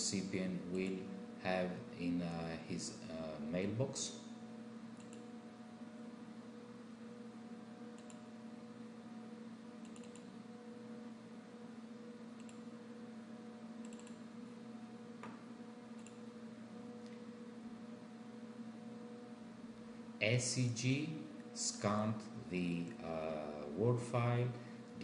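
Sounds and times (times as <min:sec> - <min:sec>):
steady low hum: 0:00.0 - 0:25.0
computer mouse clicks: 0:05.0 - 0:05.3, 0:08.0 - 0:08.2, 0:09.8 - 0:10.3, 0:12.4 - 0:12.7, 0:13.8 - 0:14.2, 0:16.0 - 0:16.2.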